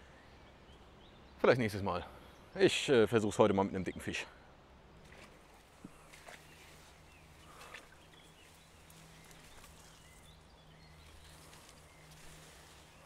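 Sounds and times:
rustling of plants: 5.0 - 13.0.

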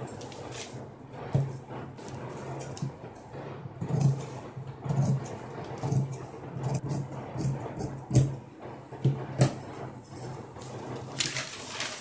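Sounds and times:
newspaper rustling: 0.0 - 0.8, 11.1 - 12.0.

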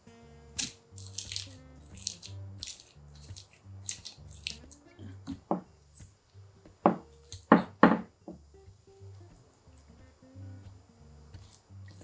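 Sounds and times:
soft squishing of rice: 0.0 - 7.6, 9.3 - 12.0
sharp handling sounds: 0.5 - 7.9.

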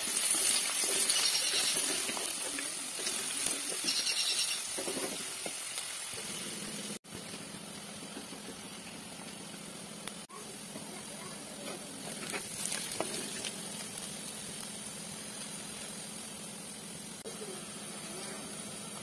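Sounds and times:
onions sizzling in hot oil: 0.0 - 19.0
wooden spatula scraping pot: 0.4 - 5.2.

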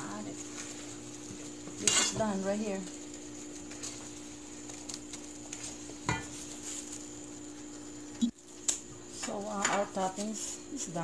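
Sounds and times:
steady low hum: 0.0 - 11.0
ladle stirring and scraping pan: 0.3 - 2.4, 5.9 - 6.7.

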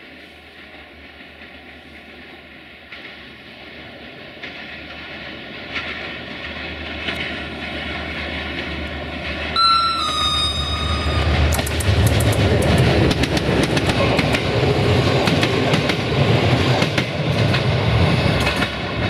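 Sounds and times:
diesel locomotive engine hum: 0.0 - 19.0
locomotive horn: 9.6 - 11.8
wheel clicks on rails: 11.5 - 14.4.

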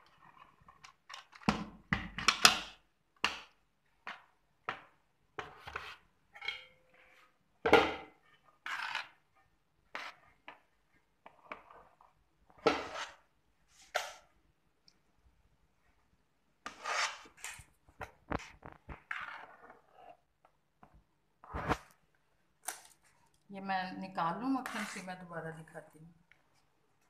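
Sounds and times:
metal spoon scraping a metal pot: 24.4 - 25.2.

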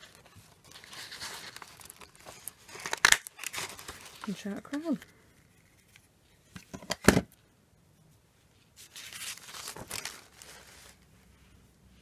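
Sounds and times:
paper rustling and crinkling: 0.0 - 5.0, 8.8 - 11.6.

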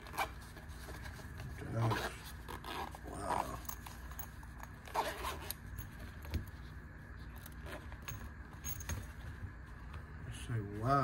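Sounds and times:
zipper being pulled: 0.0 - 3.9, 4.8 - 5.9
fabric pouch rubbing: 0.0 - 4.1, 4.7 - 8.1.

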